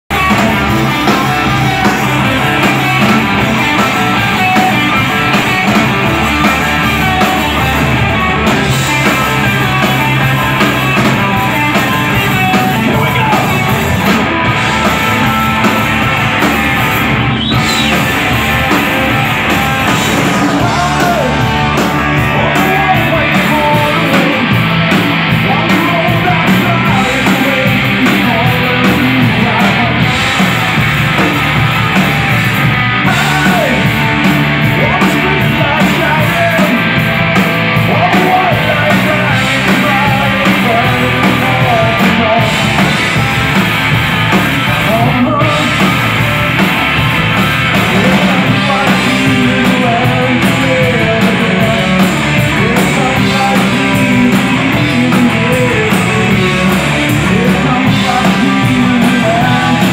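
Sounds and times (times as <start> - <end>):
rock band playing live: 0.0 - 59.9.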